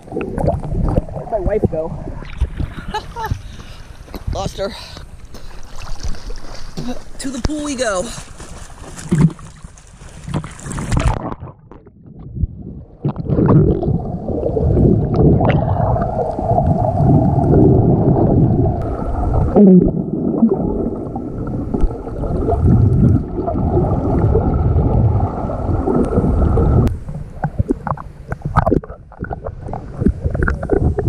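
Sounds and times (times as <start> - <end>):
muffled underwater water noise: 0.0 - 31.0
waves and wind: 0.8 - 11.2.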